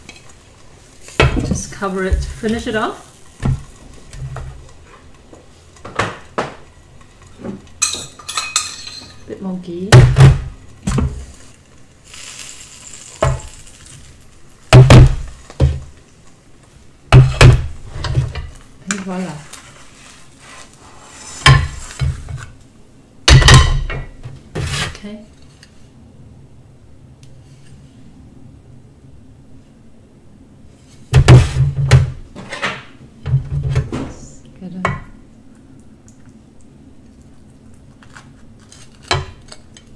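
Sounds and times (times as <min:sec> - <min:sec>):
faint hiss from pan: 0:00.0 - 0:09.9, 0:10.5 - 0:16.9, 0:17.6 - 0:22.5
faint room hum: 0:00.0 - 0:39.9
kitchenware knocking on metal counter: 0:09.9 - 0:11.1, 0:23.3 - 0:24.1.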